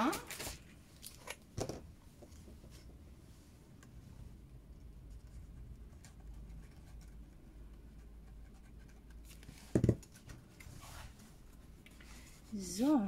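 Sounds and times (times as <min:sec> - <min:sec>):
paper rustling and scratching: 0:08.0 - 0:11.4.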